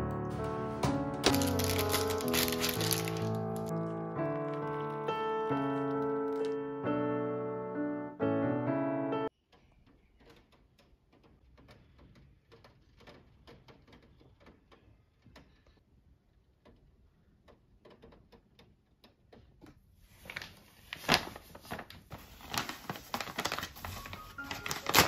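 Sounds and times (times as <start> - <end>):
paper bag crinkling: 1.2 - 6.6, 20.2 - 25.0.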